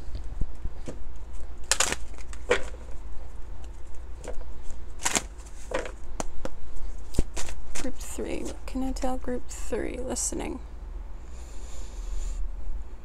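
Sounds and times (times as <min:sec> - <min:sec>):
cards being shuffled by hand: 0:00.1 - 0:03.0, 0:03.6 - 0:08.7.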